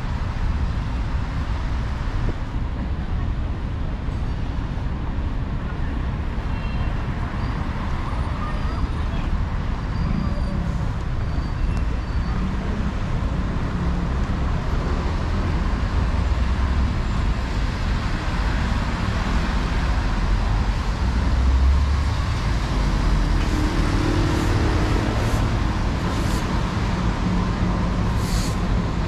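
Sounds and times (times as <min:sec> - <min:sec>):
traffic rumble: 0:00.0 - 0:29.0
tyres hissing on wet road: 0:10.6 - 0:29.0.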